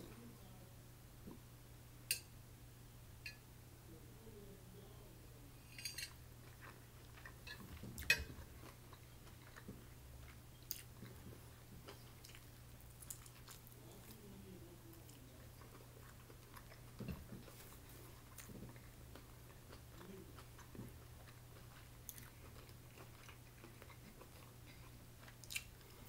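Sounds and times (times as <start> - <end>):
fork clinking on plate: 5.7 - 6.2, 7.5 - 8.3
close-up chewing: 6.4 - 14.3, 14.9 - 26.0.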